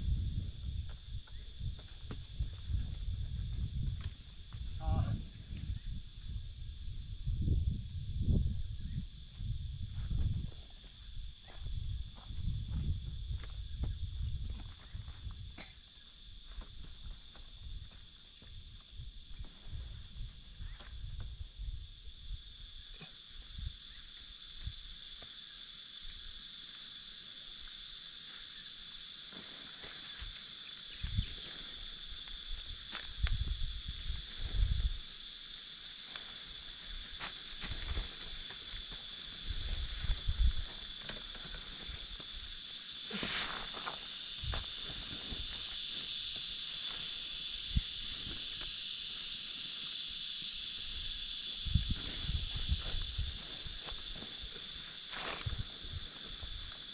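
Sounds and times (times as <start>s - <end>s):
cicadas droning: 0.0s - 56.9s.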